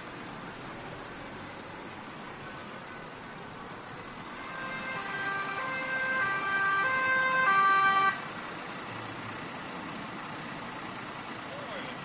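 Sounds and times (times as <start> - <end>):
motorway traffic noise: 0.0 - 12.0
two-tone police siren: 4.3 - 8.3.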